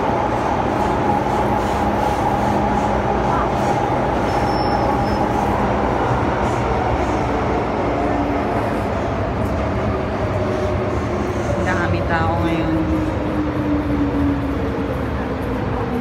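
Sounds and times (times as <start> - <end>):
subway train rumbling: 0.0 - 16.0.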